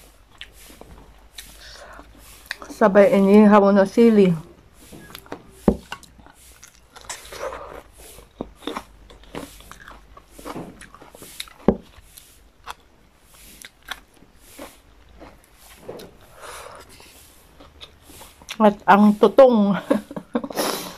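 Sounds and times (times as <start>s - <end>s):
chewing with wet mouth smacks: 0.2s - 2.8s, 5.0s - 18.6s.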